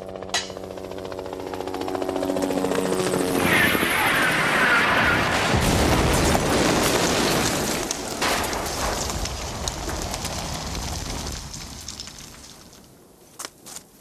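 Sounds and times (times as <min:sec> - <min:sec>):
explosion rumble with crackling: 0:03.4 - 0:13.1.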